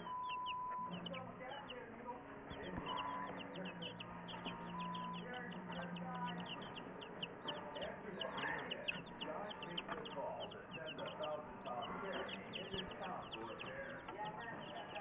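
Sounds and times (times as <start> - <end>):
chicks peeping: 0.0 - 15.0.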